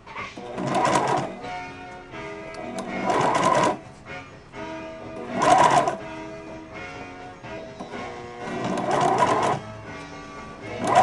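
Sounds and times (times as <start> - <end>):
background music: 0.0 - 11.0
sewing machine stitching: 0.3 - 1.6, 2.7 - 3.8, 5.2 - 6.1, 7.8 - 9.7, 10.7 - 11.0.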